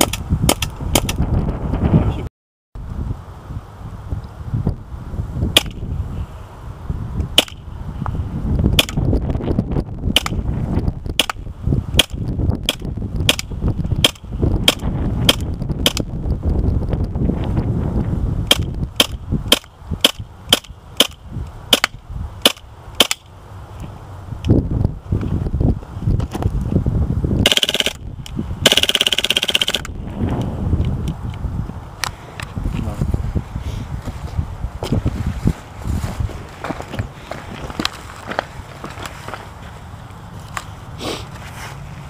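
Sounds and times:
steady low rumble: 0.0s - 42.0s
airsoft gun firing sharp cracks: 5.6s - 5.8s, 7.4s - 7.6s, 11.2s - 11.4s, 12.0s - 16.0s, 18.5s - 23.3s, 27.4s - 28.0s, 28.6s - 30.0s.

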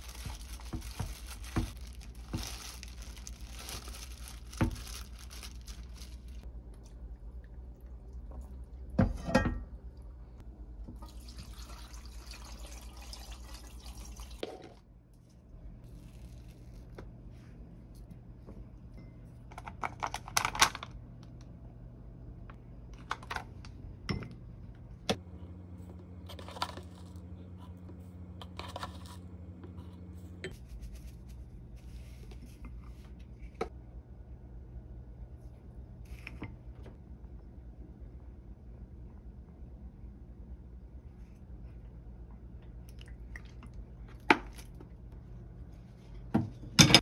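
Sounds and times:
plastic film peeled back: 0.0s - 6.4s
steady low hum: 20.7s - 47.0s.

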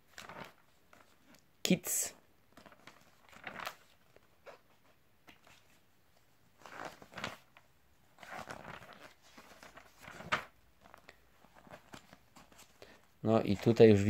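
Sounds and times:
album pages turning: 0.0s - 1.4s, 2.5s - 5.9s, 6.5s - 12.8s.

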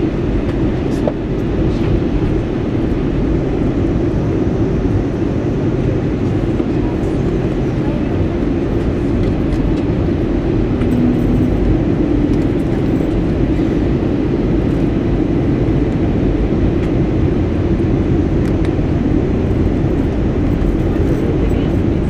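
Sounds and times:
airliner cabin engine roar: 0.0s - 22.0s
brief low hum: 10.6s - 13.2s.

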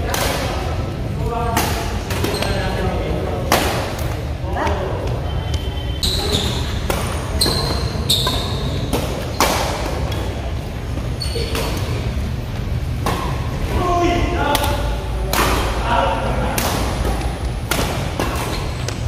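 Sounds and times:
rackets hitting a shuttlecock: 0.0s - 0.7s, 1.5s - 2.7s, 3.4s - 4.8s, 6.2s - 10.4s, 12.9s - 13.8s, 14.4s - 19.0s
hum of a large hall: 0.0s - 19.0s.

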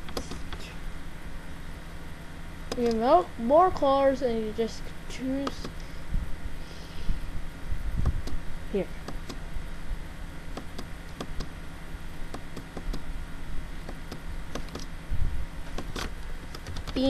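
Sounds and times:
low background hum: 0.0s - 17.0s
computer mouse clicking: 0.1s - 0.6s, 10.6s - 11.5s, 12.3s - 13.0s, 13.8s - 14.9s.

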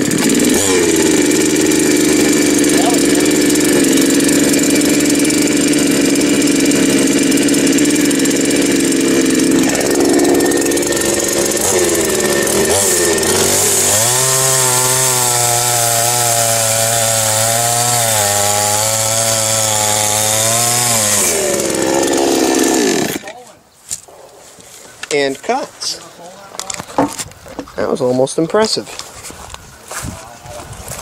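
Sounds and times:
chainsaw engine running: 0.0s - 23.4s.

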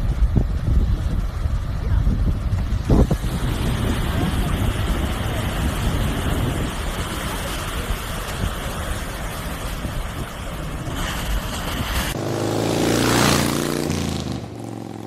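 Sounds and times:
surf rushing: 0.0s - 14.8s
wind rumbling on microphone: 0.0s - 15.0s
motorcycle engine passing: 11.9s - 15.0s.

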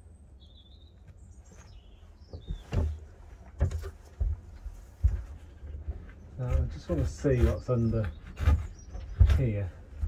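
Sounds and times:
small bird chirping: 0.0s - 3.4s, 6.0s - 10.0s
dull thumps: 2.2s - 10.0s.

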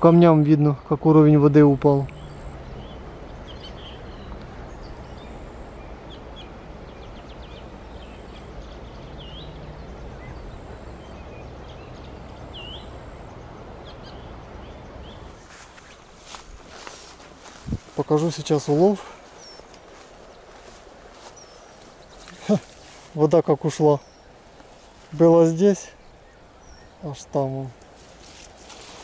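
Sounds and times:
birds chirping: 0.0s - 29.0s
bird whistling dipping notes: 2.1s - 15.3s
river water running over rocks: 4.1s - 29.0s.

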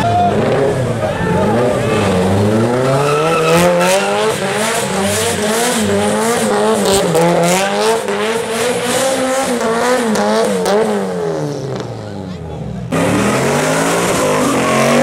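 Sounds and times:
car engine revving: 0.0s - 15.0s
tyres squealing: 1.0s - 6.5s.

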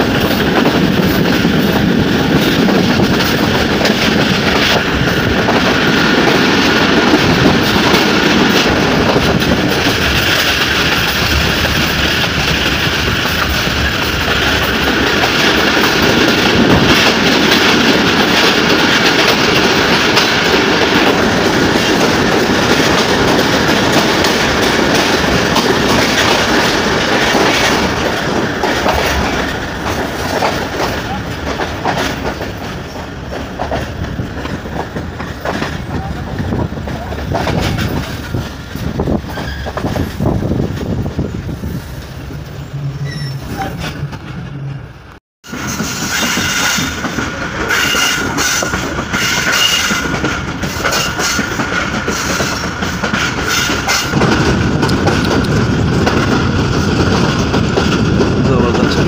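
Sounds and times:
passenger train running on track: 0.0s - 59.0s.

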